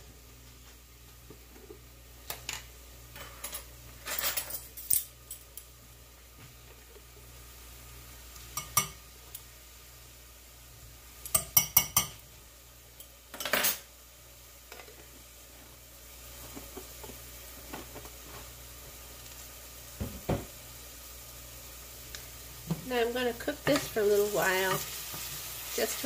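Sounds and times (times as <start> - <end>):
faint sizzle in oil: 0.0 - 26.0
metal utensil tapping saucepan: 8.6 - 9.0, 11.3 - 12.2
thump: 20.0 - 20.5.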